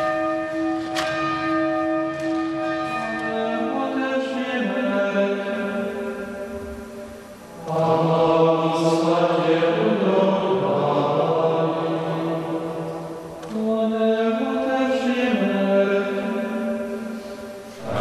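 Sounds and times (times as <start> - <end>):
men chanting: 7.6 - 16.0, 17.8 - 18.0.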